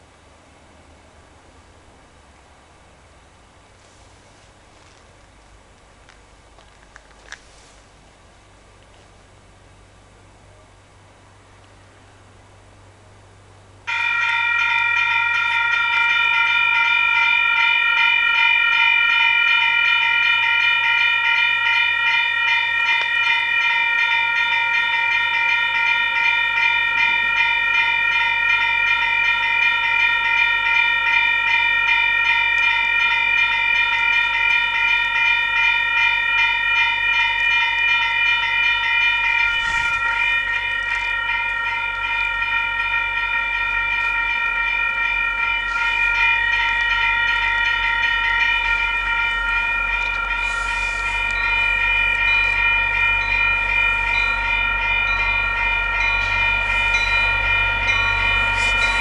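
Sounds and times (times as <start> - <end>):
low train rumble: 0.0 - 59.0
crossing warning bell ringing: 13.4 - 59.0.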